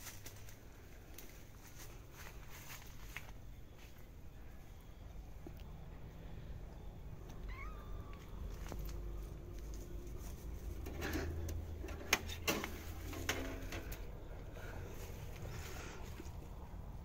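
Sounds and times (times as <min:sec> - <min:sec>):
kitten meowing: 0:07.3 - 0:08.4.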